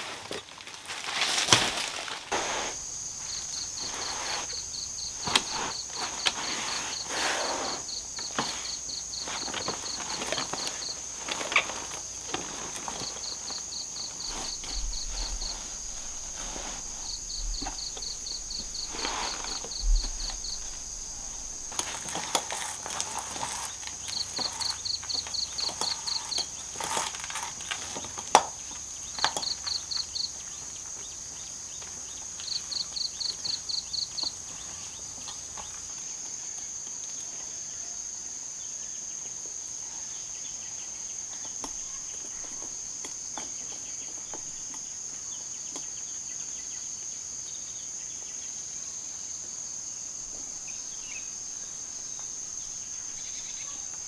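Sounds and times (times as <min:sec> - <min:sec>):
knocks and rustles: 0:00.0 - 0:29.8
insects droning: 0:00.0 - 0:54.0
rapid insect chirps: 0:00.0 - 0:54.0.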